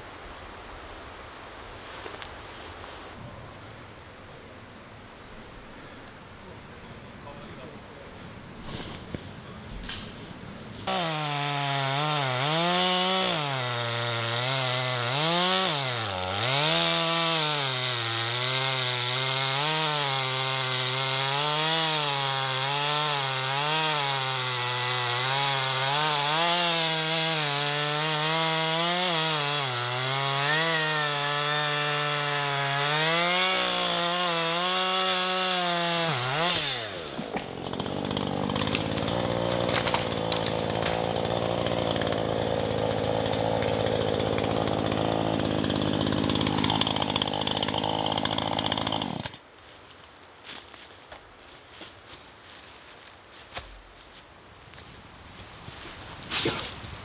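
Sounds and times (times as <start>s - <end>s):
chainsaw cutting wood: 10.8s - 49.4s, 56.3s - 56.9s.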